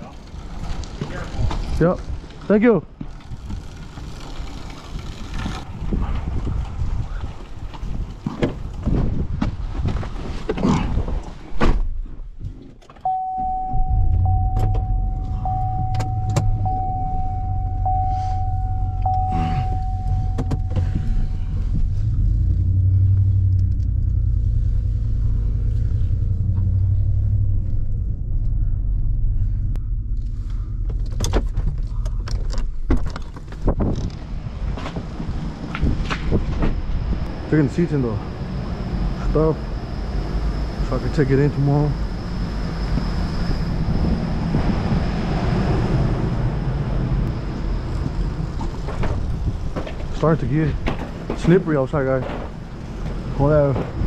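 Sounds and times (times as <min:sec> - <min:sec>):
steady high tone: 0:13.0 - 0:21.8, 0:34.8 - 0:48.5
car engine running: 0:13.0 - 0:54.0.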